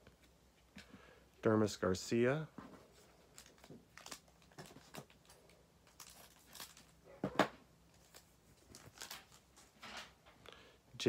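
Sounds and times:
foil wrapper crinkling: 3.0 - 7.0, 7.9 - 9.7.

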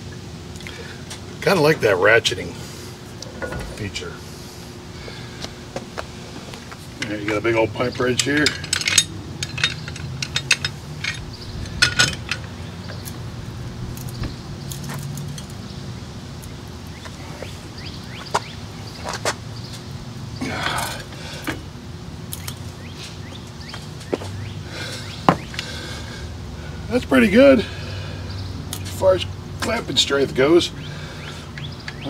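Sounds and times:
steady low hum: 0.0 - 32.0
metal rattling: 3.3 - 4.2, 8.0 - 15.7
metal clinks: 8.2 - 12.5.

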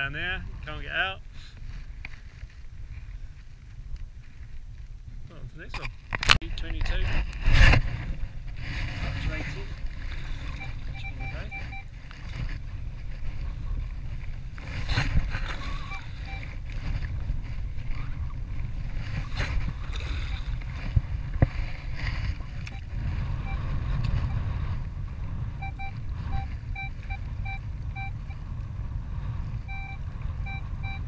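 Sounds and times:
wind rumbling on microphone: 0.0 - 31.0
metal detector beeps: 10.4 - 12.0, 15.4 - 16.6, 19.8 - 20.6, 22.6 - 24.4, 25.6 - 28.4, 29.6 - 31.0.

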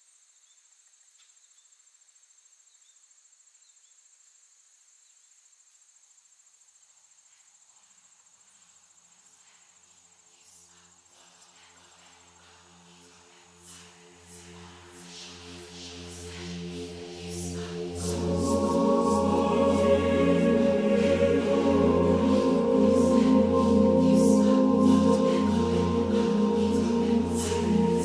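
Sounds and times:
crickets trilling: 0.0 - 28.0
low musical drone: 11.5 - 28.0.

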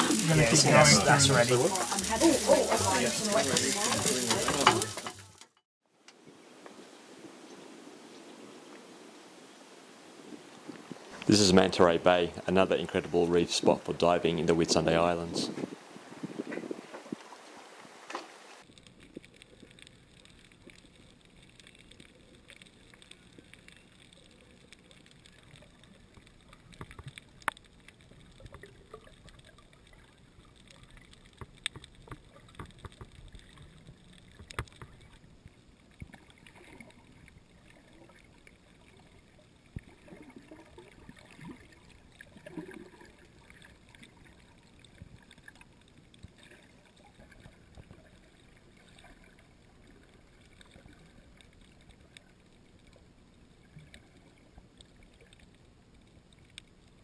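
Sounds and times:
sharp underwater clicks: 18.1 - 38.6.

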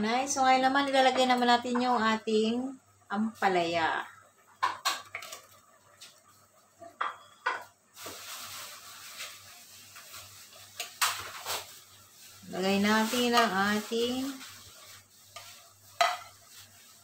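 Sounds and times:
simmering liquid hiss: 7.8 - 17.0.

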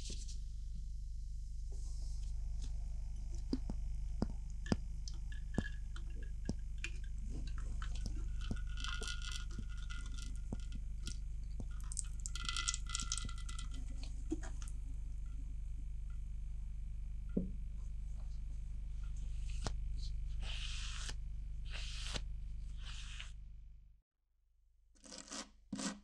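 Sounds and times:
steady low hum: 0.0 - 23.6
water trickling: 4.7 - 13.9
water dripping into metal sink: 5.0 - 13.8.

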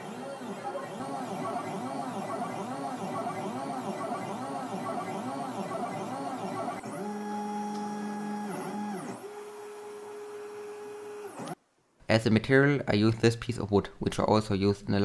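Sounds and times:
stepper motors whining: 0.0 - 11.6.

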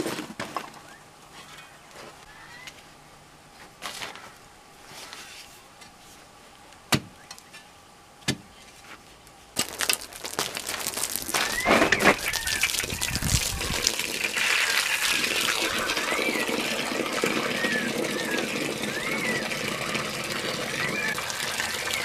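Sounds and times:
hose water splashing into hole: 9.6 - 22.0.

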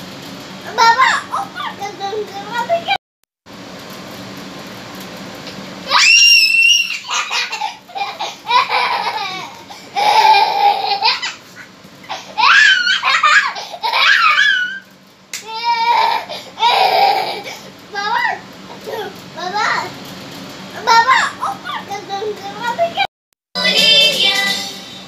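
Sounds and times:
small child laughing and squealing: 0.8 - 1.8, 5.9 - 14.9.

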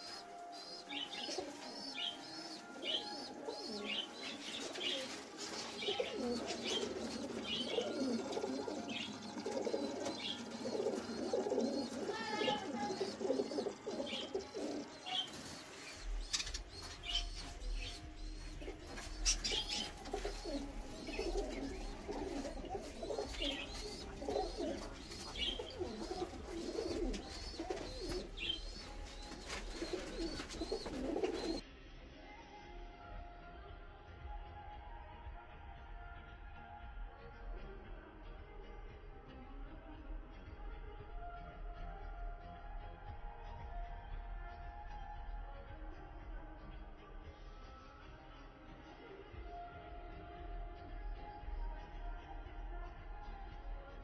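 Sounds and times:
doves cooing: 0.0 - 31.6
small birds chirping: 0.0 - 31.6.

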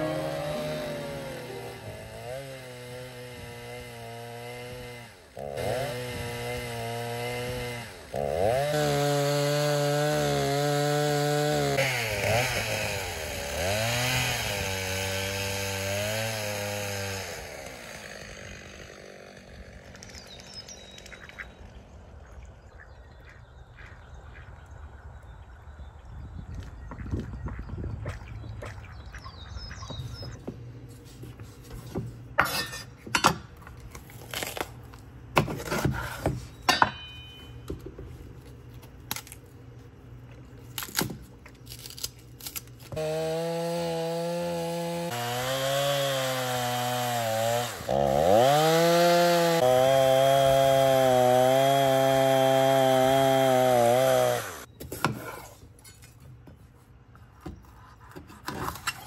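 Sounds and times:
chainsaw cutting log: 0.0 - 20.8, 42.0 - 55.6.

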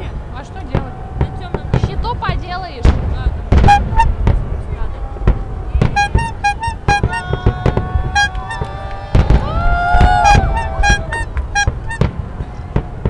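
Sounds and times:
fireworks bangs: 0.0 - 13.0
electronic wail: 5.9 - 12.1
short electronic beeps: 6.0 - 7.2.

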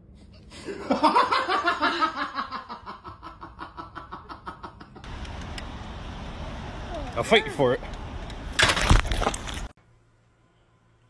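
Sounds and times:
person laughing hard: 0.6 - 5.1.

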